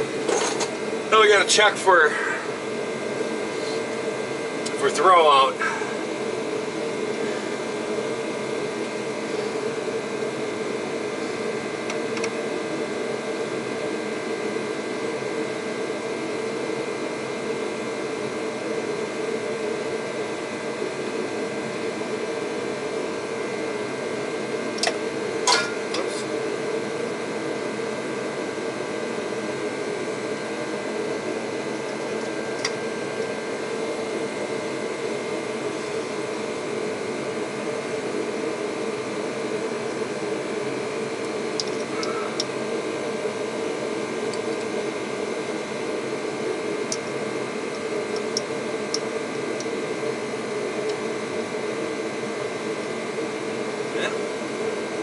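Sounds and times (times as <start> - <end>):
heater roaring: 0.0 - 55.0.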